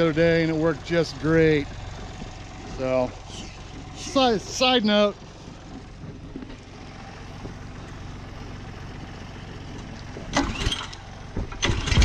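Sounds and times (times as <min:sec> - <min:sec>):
tractor diesel engine idling: 0:00.0 - 0:12.0
recoil starter rattling pull: 0:10.3 - 0:12.0.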